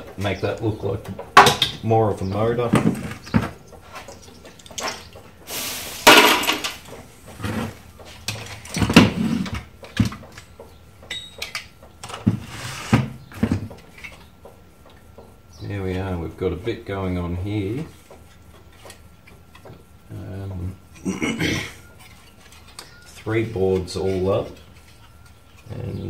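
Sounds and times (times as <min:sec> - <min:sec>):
clicks and knocks of metal parts: 0:08.0 - 0:12.3, 0:21.9 - 0:25.7.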